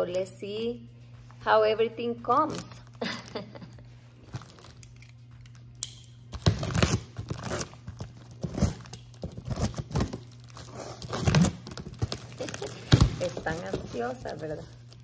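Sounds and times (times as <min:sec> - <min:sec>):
packing tape ripping: 0:02.4 - 0:15.0.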